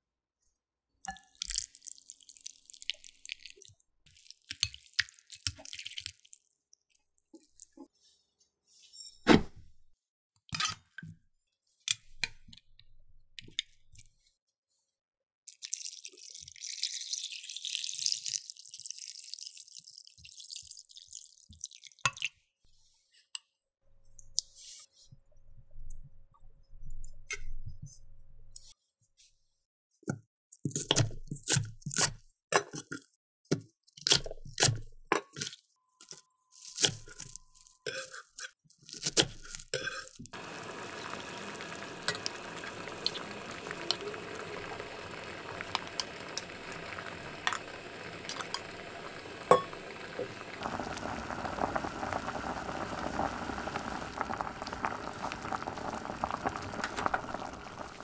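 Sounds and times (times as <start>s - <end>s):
water running into a bowl: 40.3s - 58.0s.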